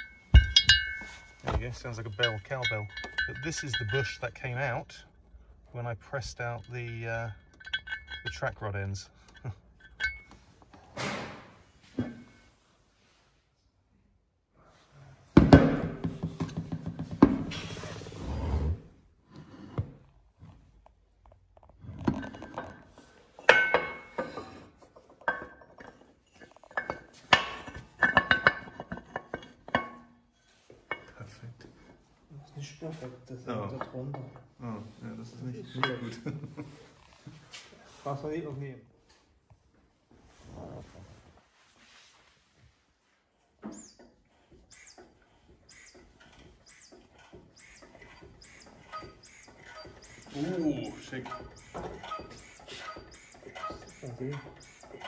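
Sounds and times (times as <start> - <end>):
workshop press squeaking: 0.0 - 4.6, 6.1 - 10.6, 43.6 - 55.0
metal clanking on steel plates: 0.0 - 4.8, 6.2 - 11.4, 23.3 - 31.4, 44.8 - 55.0.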